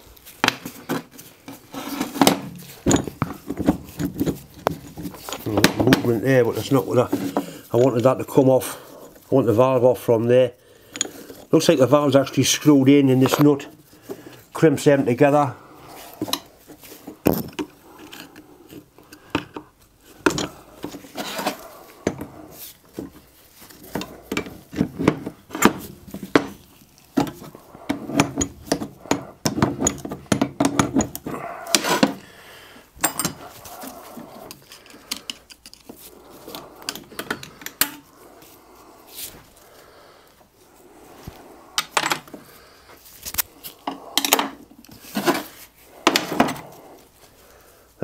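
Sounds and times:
metal clinks and knocks of tools: 0:00.4 - 0:07.5, 0:10.9 - 0:11.5, 0:16.2 - 0:32.2, 0:33.0 - 0:38.1.

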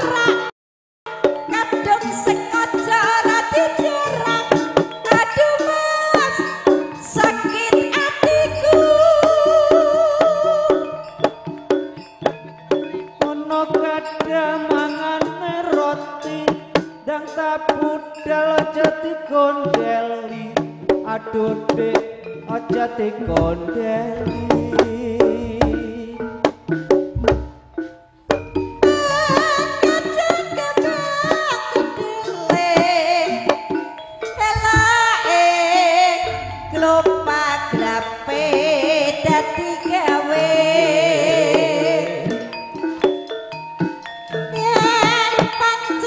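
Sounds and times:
percussion: 0:00.0 - 0:00.5, 0:01.1 - 0:46.0
wavering melody line: 0:01.3 - 0:16.4, 0:21.3 - 0:46.0
gong-chime notes: 0:04.1 - 0:14.0, 0:33.4 - 0:44.5
hand drum strokes: 0:19.7 - 0:40.6.

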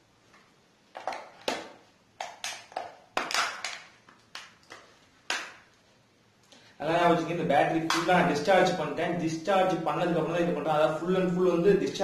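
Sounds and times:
plastic casing cracking and snapping: 0:01.0 - 0:05.6.

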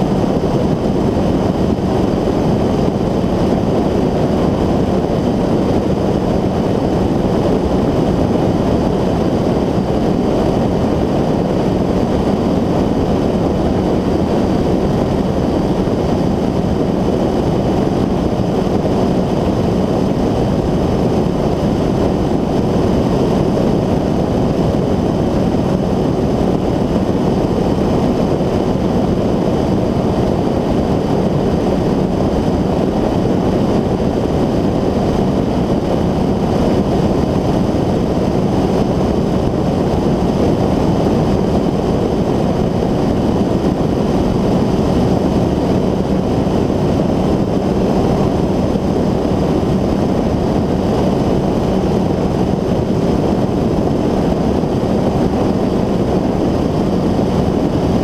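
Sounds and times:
aircraft engine and propeller drone: 0:00.0 - 0:58.0
rushing air: 0:00.0 - 0:58.0.

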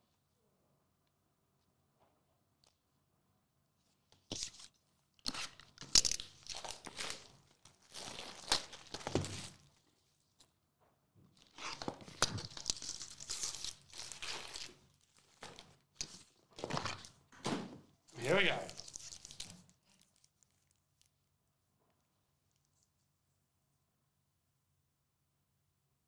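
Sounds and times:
plastic wrap crinkling and tearing: 0:04.3 - 0:10.5, 0:11.4 - 0:17.2, 0:18.2 - 0:21.2
card packs handled: 0:05.3 - 0:09.8, 0:11.4 - 0:17.6, 0:18.2 - 0:20.8.

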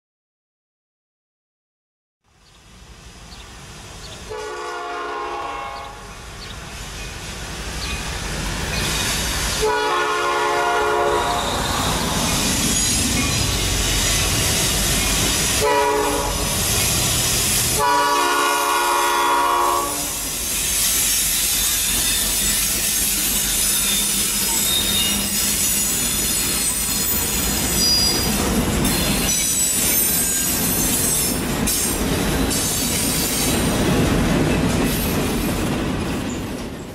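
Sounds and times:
train rumbling past: 0:02.3 - 0:36.9
locomotive air horn: 0:04.3 - 0:06.1, 0:09.6 - 0:11.9, 0:15.6 - 0:16.6, 0:17.7 - 0:20.3
wheels squealing: 0:11.0 - 0:15.6, 0:20.2 - 0:33.7.

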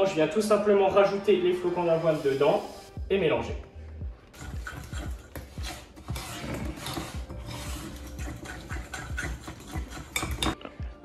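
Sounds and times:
utensil scraping a mixing bowl: 0:04.3 - 0:10.6.

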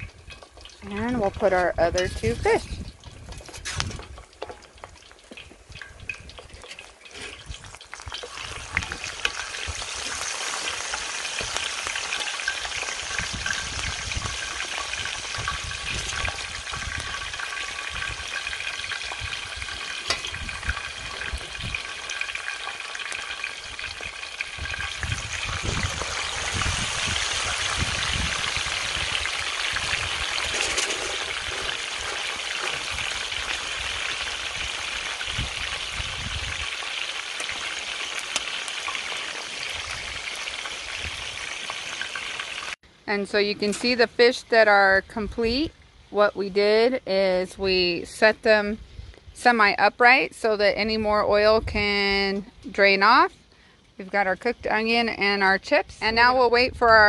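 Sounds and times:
fish deep-frying in hot oil: 0:00.0 - 0:42.8.

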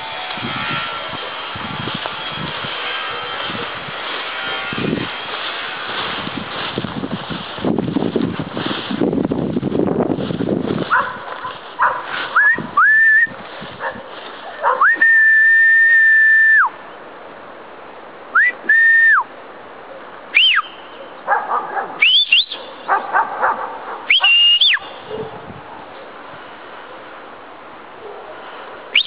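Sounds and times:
person whistling: 0:12.3 - 0:13.4, 0:14.8 - 0:16.7, 0:18.4 - 0:19.2, 0:20.4 - 0:20.8, 0:22.0 - 0:22.6, 0:24.1 - 0:24.8.

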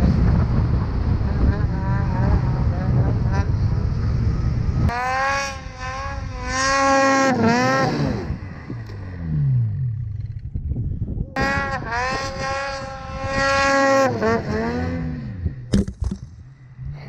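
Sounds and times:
snowmobile engines revving: 0:00.0 - 0:10.4, 0:11.3 - 0:15.7.

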